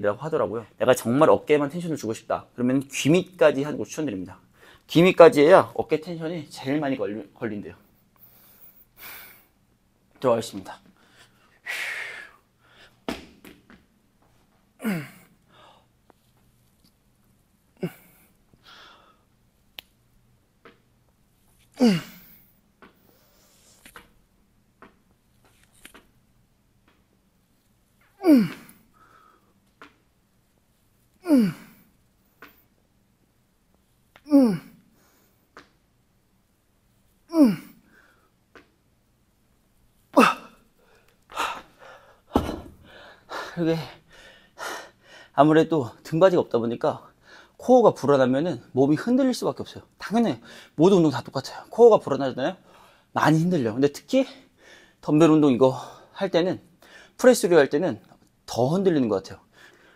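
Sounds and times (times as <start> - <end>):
man grunting with straining exhales: 14.8 - 15.2, 21.8 - 22.4, 28.2 - 28.8, 31.2 - 31.8, 34.3 - 34.8, 37.3 - 37.8
heavy breathing: 40.2 - 45.4
dumbbells thudding on floor: 42.3 - 43.0.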